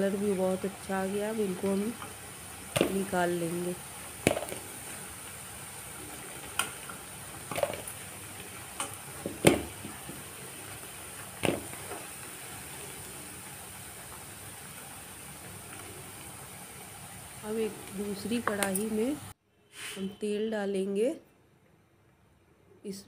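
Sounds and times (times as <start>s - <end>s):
deep-frying sizzle in hot oil: 0.0s - 19.4s
steel spoon knocking on pan: 2.8s - 3.2s, 8.8s - 10.2s.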